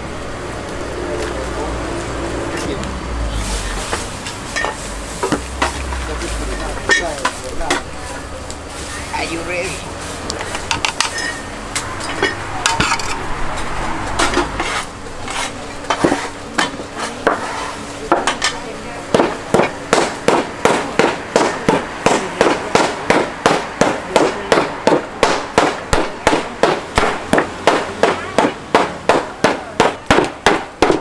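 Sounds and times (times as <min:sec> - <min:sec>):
hammer pounding candy: 0:19.1 - 0:31.0.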